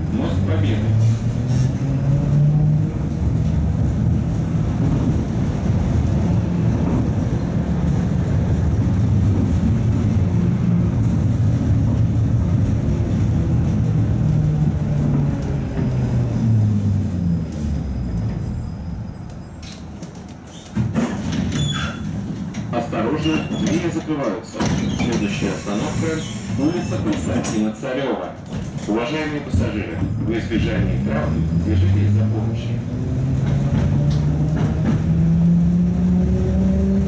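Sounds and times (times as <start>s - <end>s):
tram running on track: 0.0s - 37.0s
sudden clatter: 20.0s - 25.5s.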